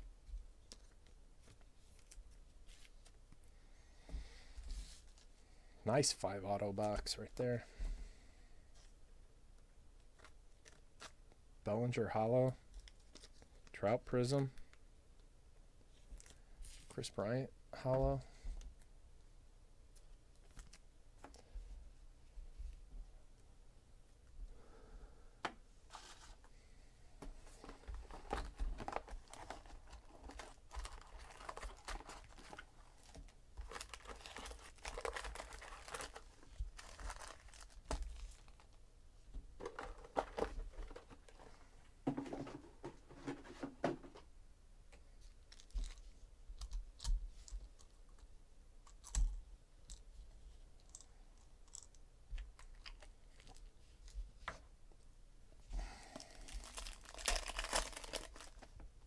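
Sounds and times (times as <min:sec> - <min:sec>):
foil wrappers crinkling: 0:27.6 - 0:38.8, 0:56.2 - 0:58.8.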